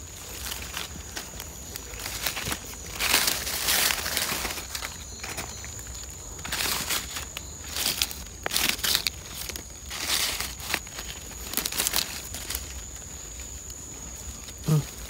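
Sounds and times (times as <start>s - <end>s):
dry leaves crunching and rustling: 0.0s - 15.0s.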